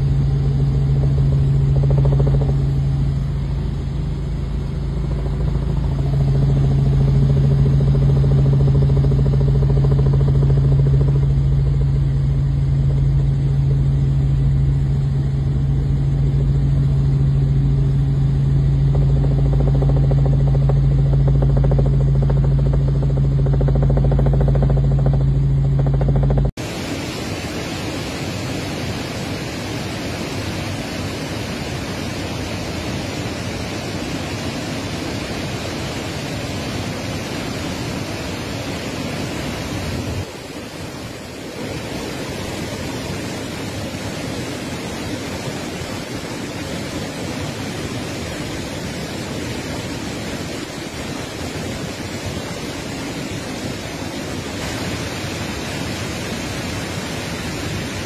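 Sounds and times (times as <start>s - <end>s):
waterfall rushing: 26.6s - 58.0s.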